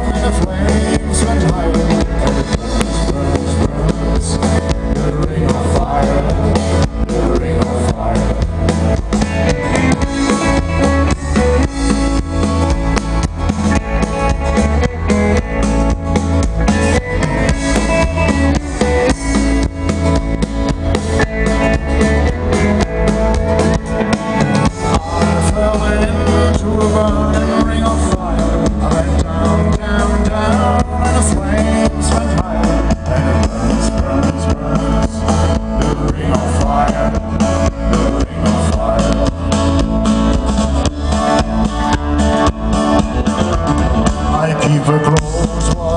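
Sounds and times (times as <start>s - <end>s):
person singing: 0.0s - 15.9s, 20.7s - 39.8s, 43.4s - 45.9s
live country band over pa: 0.0s - 45.9s.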